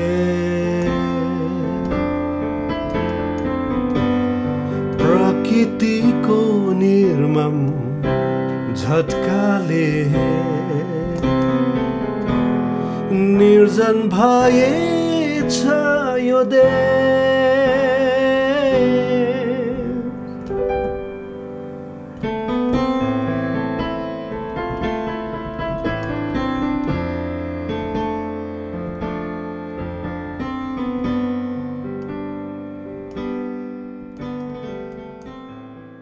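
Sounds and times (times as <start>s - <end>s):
slow keyboard melody: 0.0s - 36.0s.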